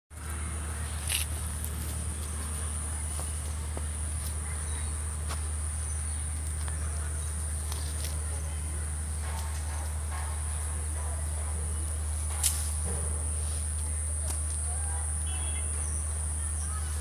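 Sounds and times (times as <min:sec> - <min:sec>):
insects chirring: 0:09.9 - 0:17.0.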